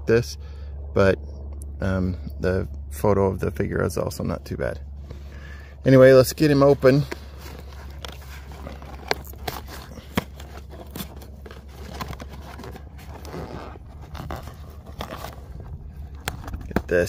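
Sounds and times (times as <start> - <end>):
tape and cardboard scraping: 5.9 - 17.0
tape tearing crackles: 6.4 - 17.0.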